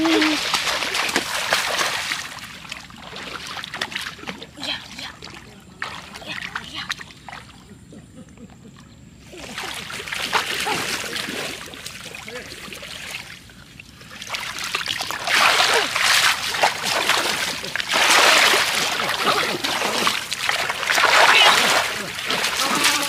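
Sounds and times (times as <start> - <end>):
basket splashing in muddy water: 0.0 - 4.5, 9.4 - 13.4, 14.2 - 23.0
feet sloshing through water: 0.0 - 23.0.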